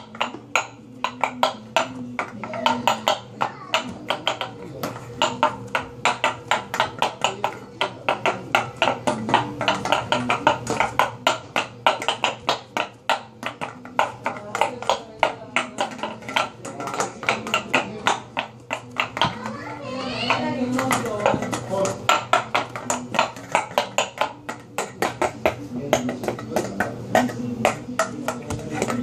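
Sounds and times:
person making rhythmic clicks: 0.0s - 19.6s.

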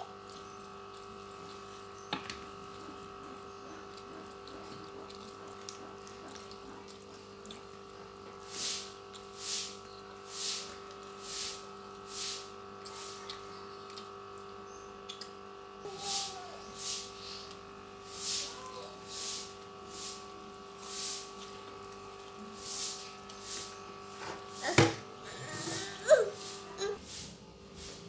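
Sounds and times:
faint room hum: 0.0s - 28.0s
person breathing while eating: 24.6s - 28.0s.

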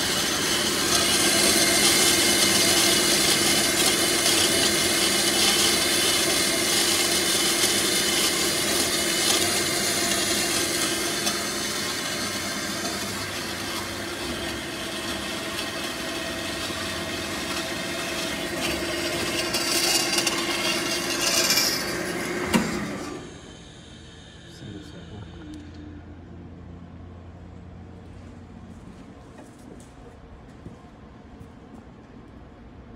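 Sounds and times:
band saw cutting metal: 0.0s - 25.5s.

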